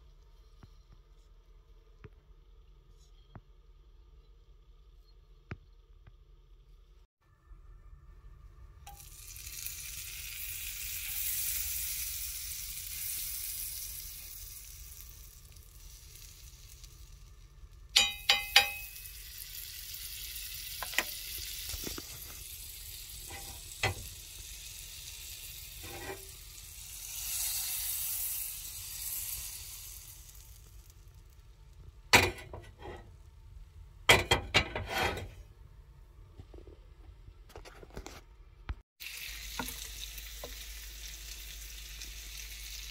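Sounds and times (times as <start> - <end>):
butter sizzling in a frying pan: 8.9 - 33.2, 39.0 - 42.9
sharp knocks and clinks: 18.0 - 19.0.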